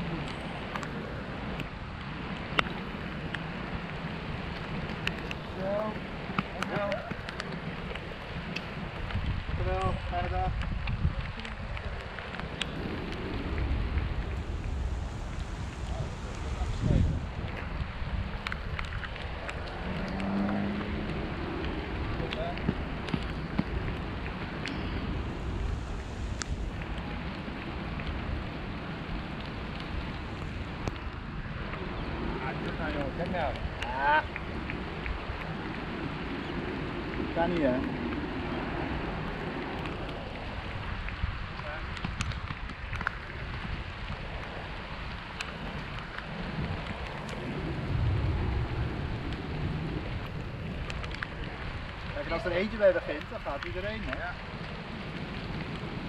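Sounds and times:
rain falling: 0:00.0 - 0:56.0
wind buffeting microphone: 0:00.0 - 0:56.0
light ticks: 0:00.2 - 0:14.8, 0:18.4 - 0:25.1, 0:29.3 - 0:31.8, 0:39.5 - 0:48.3, 0:50.2 - 0:55.9
low rumble: 0:08.7 - 0:56.0.

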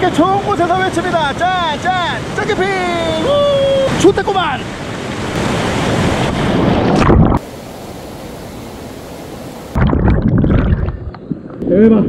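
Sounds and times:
stream water rushing and splashing: 0:00.0 - 0:11.3
steady water hiss: 0:07.4 - 0:09.8.

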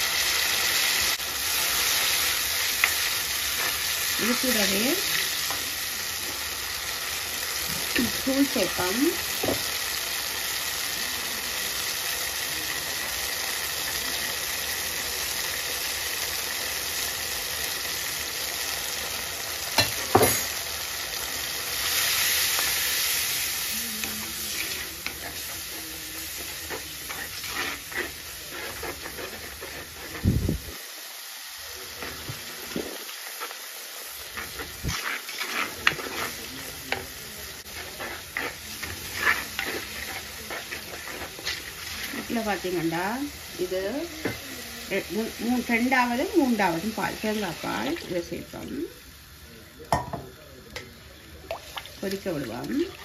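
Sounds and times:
onions sizzling in oil: 0:00.0 - 0:53.0
wooden spoon stirring: 0:21.7 - 0:30.4, 0:34.2 - 0:45.6.

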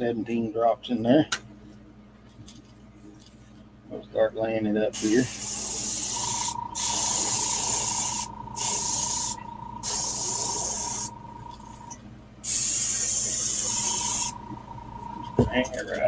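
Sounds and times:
airbrush spraying hiss: 0:05.0 - 0:11.2, 0:12.4 - 0:14.4.

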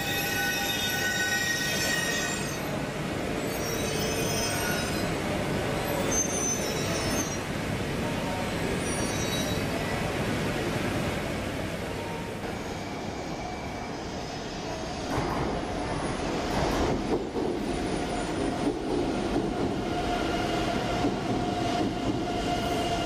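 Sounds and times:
train wheels squealing: 0:00.0 - 0:02.8, 0:03.4 - 0:05.2, 0:05.8 - 0:07.4, 0:08.8 - 0:09.8, 0:12.4 - 0:15.0
train running rumble: 0:15.0 - 0:22.7.

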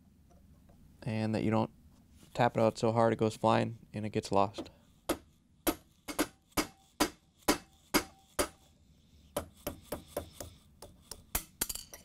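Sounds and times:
hammer tapping steel punch: 0:04.6 - 0:08.7.

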